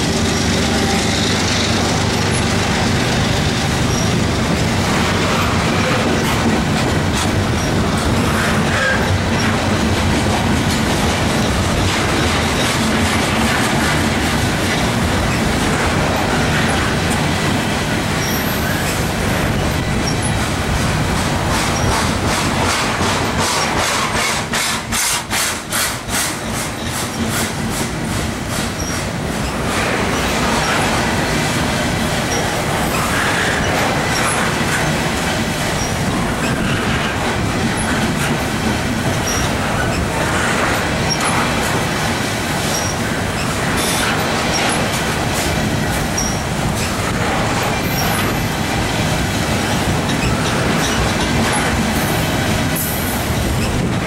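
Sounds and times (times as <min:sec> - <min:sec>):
train wheels rumbling on rail: 0:00.0 - 0:54.0
high wheel squeaks: 0:03.8 - 0:04.4, 0:18.2 - 0:20.4, 0:21.7 - 0:22.2, 0:28.7 - 0:31.0, 0:35.8 - 0:38.2, 0:39.0 - 0:41.4, 0:42.7 - 0:44.9, 0:46.0 - 0:48.4.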